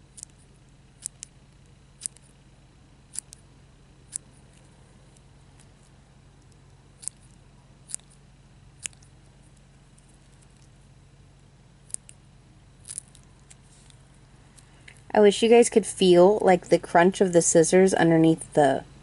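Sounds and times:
scissors snipping silicone: 0:08.8 - 0:09.1.

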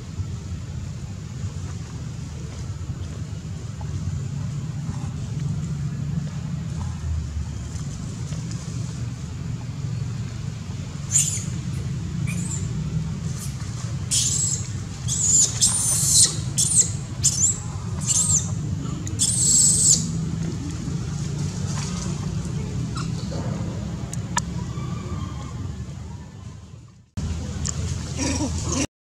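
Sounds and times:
steady low hum: 0:00.0 - 0:28.9
infant monkey squealing screams: 0:11.1 - 0:11.6, 0:12.3 - 0:12.7, 0:14.1 - 0:18.5, 0:19.2 - 0:20.1.

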